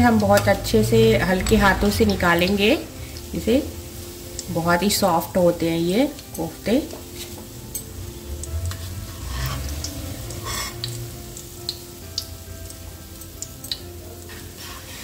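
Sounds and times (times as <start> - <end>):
food sizzling in oil: 0.0 - 15.0
spoon scraping metal pan: 8.7 - 11.0, 14.2 - 15.0.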